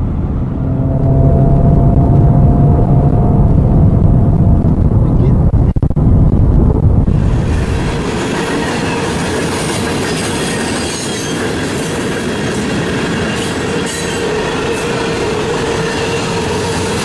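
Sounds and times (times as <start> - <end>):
steady ringing tone: 0.4 - 4.3
train wheels clattering on rail: 7.3 - 17.0.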